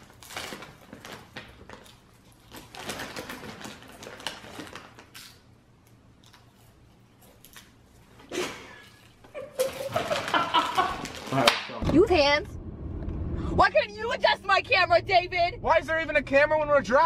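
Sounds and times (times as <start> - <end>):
plastic bag crinkling: 0.0 - 5.4, 9.8 - 11.5
popcorn being chewed: 0.0 - 8.2.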